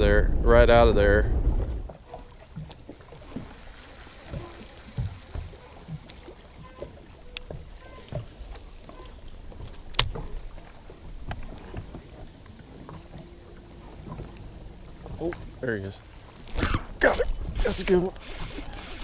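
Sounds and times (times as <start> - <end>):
low wind rumble: 0.0 - 19.0
sharp clicks: 3.1 - 8.2.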